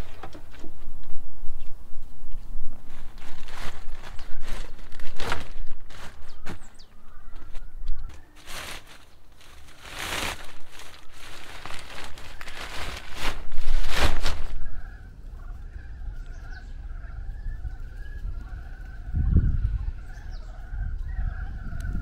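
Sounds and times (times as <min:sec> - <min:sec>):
plastic film rustling and crinkling: 0:02.7 - 0:14.9.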